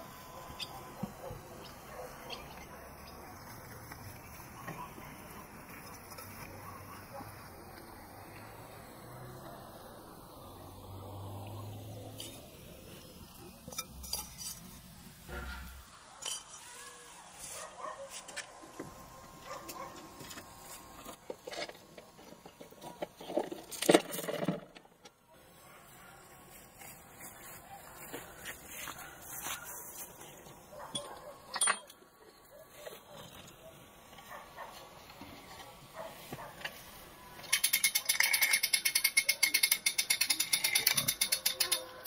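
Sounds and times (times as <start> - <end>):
chain clattering on metal: 31.0 - 32.0, 37.5 - 42.0
metal chain links clinking: 31.0 - 32.0, 37.5 - 42.0
chain clip clicking: 37.5 - 42.0.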